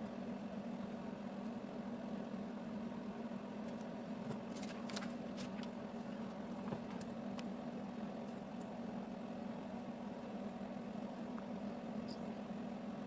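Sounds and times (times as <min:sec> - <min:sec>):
paper page rustling: 0:04.3 - 0:05.8.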